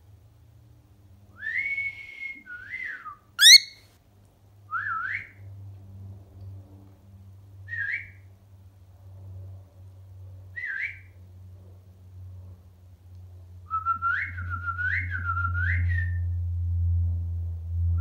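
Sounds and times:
cockatiel whistling: 3.4 - 3.8.

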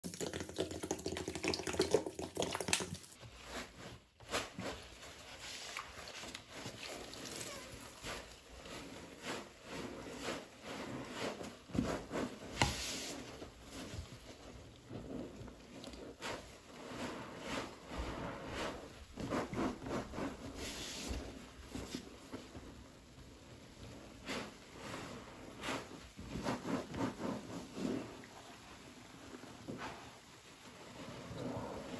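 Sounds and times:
liquid dripping: 0.0 - 3.2
wet sponge squishing: 0.4 - 31.9.

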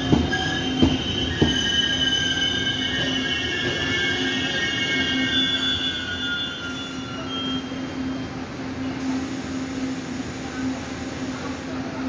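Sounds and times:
train brake and wheel squeal: 0.0 - 9.2
train low hum and rumble: 0.0 - 12.0.

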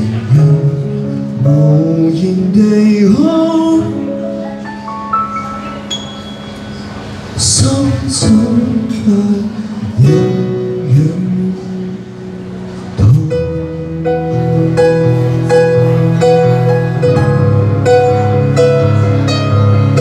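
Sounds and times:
keyboard playing: 0.4 - 20.0
person singing: 7.4 - 12.0.

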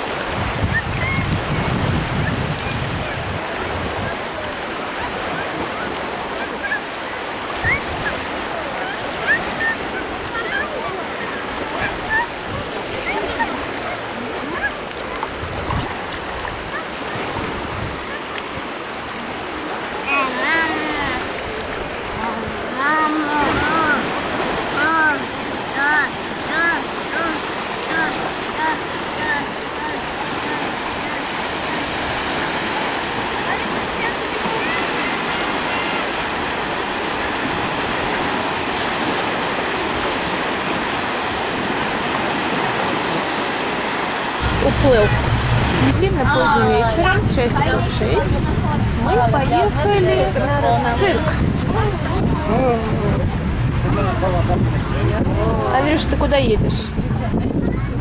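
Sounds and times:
wading sloshes: 0.0 - 52.6
small waves breaking: 0.0 - 57.3
water lapping: 0.0 - 58.0
distant voices: 44.4 - 57.8.

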